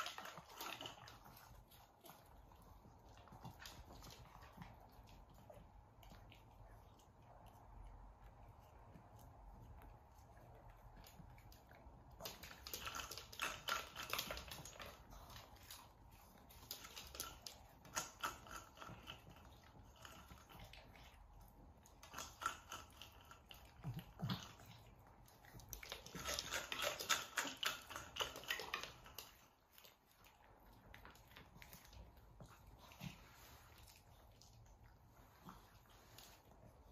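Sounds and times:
cat toy clicking and rattling: 12.2s - 15.4s, 25.6s - 29.3s.

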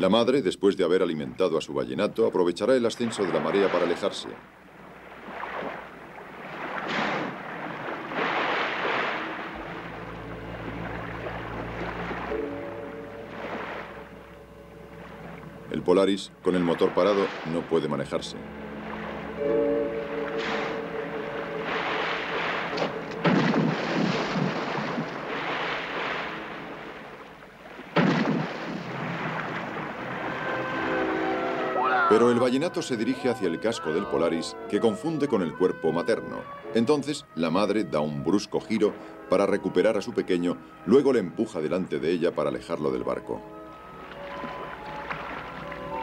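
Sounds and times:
soft background music: 0.0s - 4.8s, 8.4s - 27.8s, 29.7s - 46.0s
sea water splashing: 2.7s - 34.4s, 43.5s - 46.0s
loud rushes of water: 5.0s - 12.6s, 16.7s - 17.8s, 18.8s - 27.3s, 27.9s - 32.4s
whale blowing spray: 18.9s - 26.7s.

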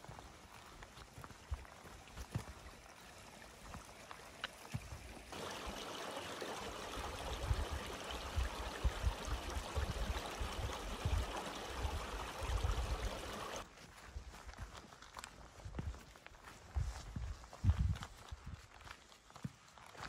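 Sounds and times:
stream trickling over rocks: 0.0s - 13.6s.

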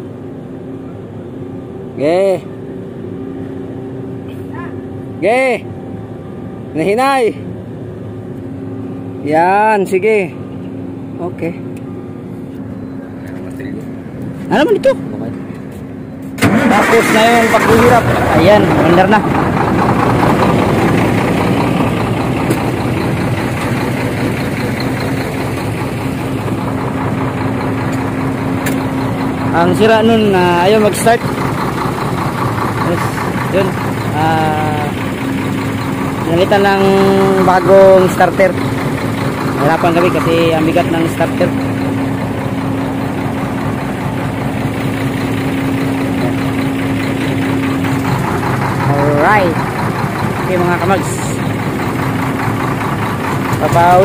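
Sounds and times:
steady low hum: 0.0s - 16.4s
constant hum: 0.0s - 54.0s
truck engine idling: 0.0s - 54.0s.

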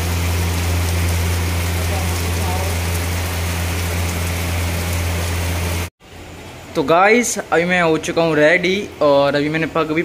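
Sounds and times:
low hum: 0.0s - 6.8s
rain falling: 0.0s - 8.6s.

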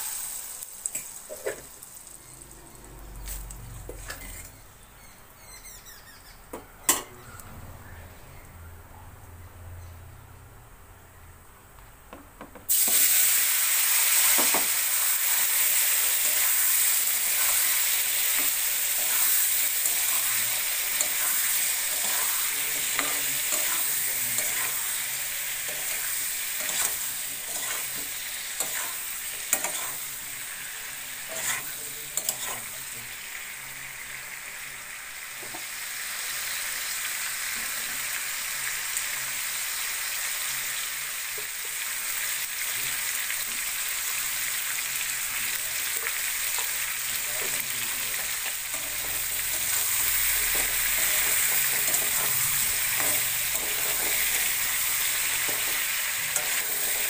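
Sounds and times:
potatoes sizzling in oil: 0.0s - 4.6s, 12.7s - 57.0s
spatula scraping: 3.3s - 4.6s, 17.2s - 30.1s, 31.2s - 32.8s.

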